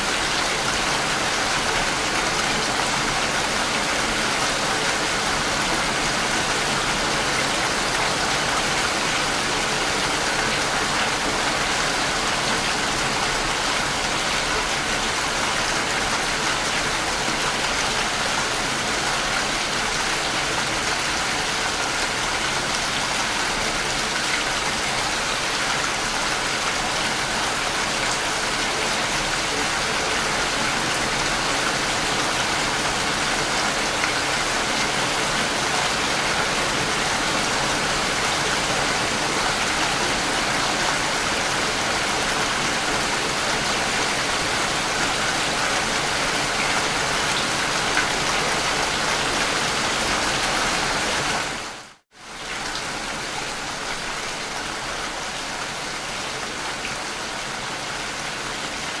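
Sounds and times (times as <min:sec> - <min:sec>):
rain falling on leaves: 0:00.0 - 0:59.0.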